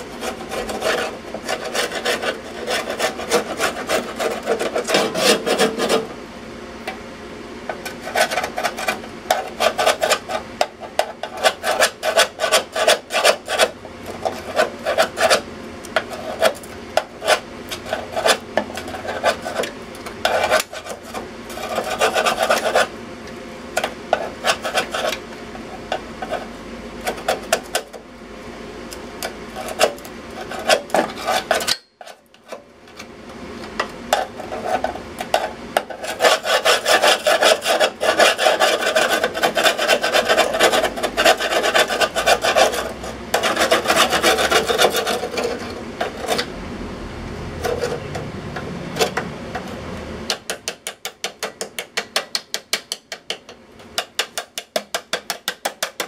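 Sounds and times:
scraper scraping rusty metal: 0.0 - 6.2, 7.7 - 22.9, 23.8 - 28.0, 29.2 - 33.1, 34.1 - 46.5, 47.6 - 48.2, 54.0 - 56.0.

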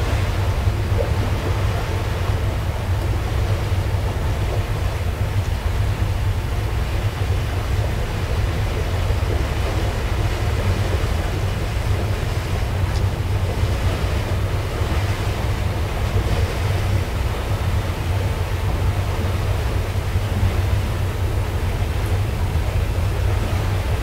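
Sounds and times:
ship engine drone: 0.0 - 24.0
water and wind noise: 0.0 - 24.0.

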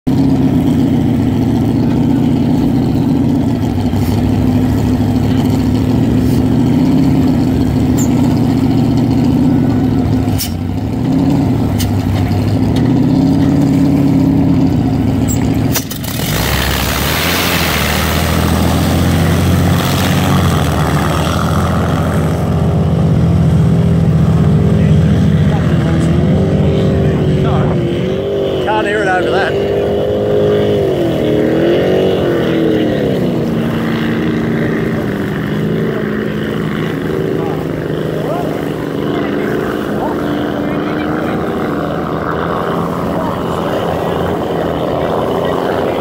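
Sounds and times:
boat engine: 0.0 - 46.0
rush of spray and water: 15.8 - 22.9, 30.5 - 46.0.

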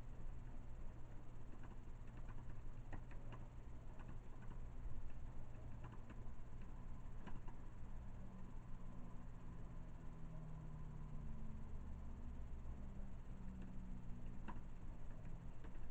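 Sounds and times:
steady low hum: 0.0 - 15.9
keyboard typing clicks: 1.5 - 7.6, 13.6 - 15.9.

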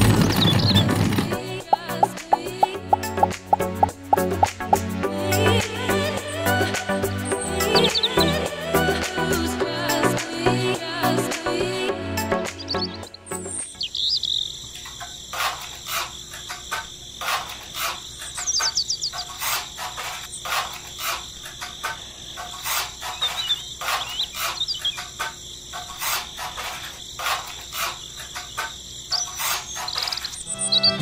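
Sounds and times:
crickets chirping: 0.0 - 30.9
bird-like chirps: 0.1 - 0.9, 7.2 - 8.4, 12.5 - 15.2, 17.9 - 19.7, 22.5 - 25.5, 27.8 - 31.0
trowel scraping wet cement: 15.3 - 16.6, 17.2 - 18.4, 19.2 - 21.7, 22.4 - 24.7, 25.8 - 28.5, 29.2 - 30.3.

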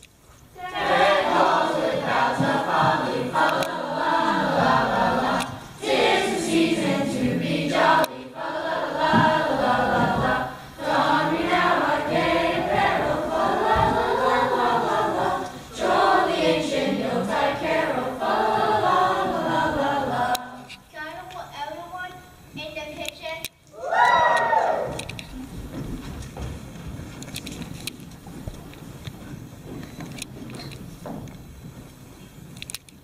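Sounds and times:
chorus of voices singing: 0.6 - 20.8.

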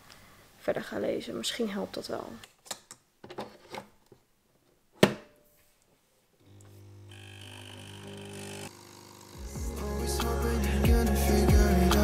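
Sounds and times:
coffee machine pump humming: 6.4 - 9.8.

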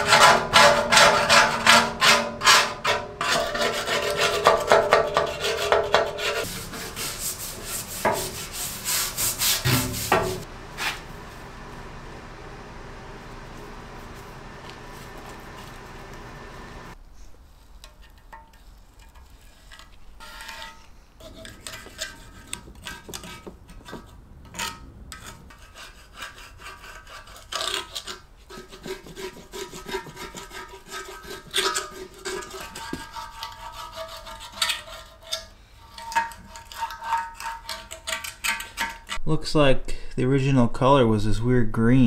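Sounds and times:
scraper scraping paint off metal: 0.0 - 11.1, 18.1 - 39.2.

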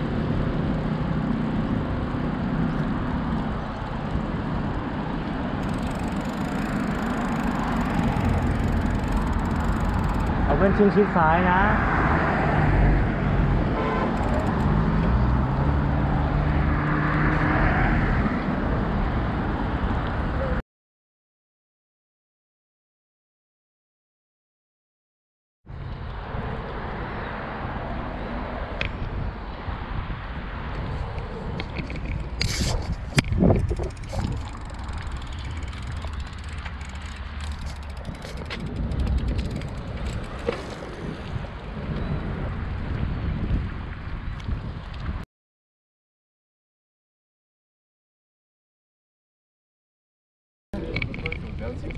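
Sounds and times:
bicycle tyres rolling: 0.0 - 10.9, 30.7 - 45.2
passing vehicle hum: 0.0 - 20.6, 25.7 - 43.6
wind rushing on microphone: 25.7 - 45.2.

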